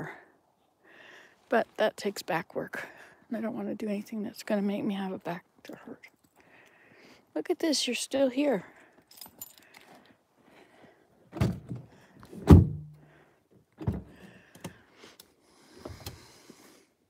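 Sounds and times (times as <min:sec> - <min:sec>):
car door thunks: 0:12.4 - 0:12.9.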